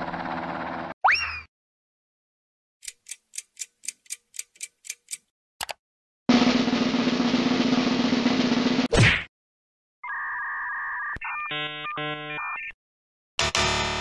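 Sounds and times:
quick even ticks: 2.8 - 5.3
drum-roll-like rattle: 6.3 - 8.9.

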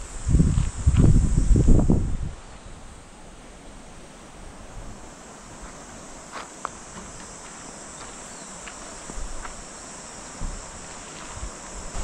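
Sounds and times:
wind rumble on microphone: 0.0 - 5.8, 9.0 - 9.6, 10.4 - 12.0
insect chorus buzzing: 0.0 - 12.0.

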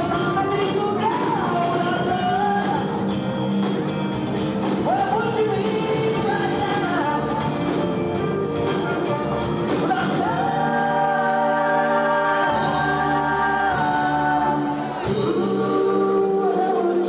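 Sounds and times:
live rock band playing: 0.0 - 17.0
voices singing in harmony: 9.8 - 17.0.

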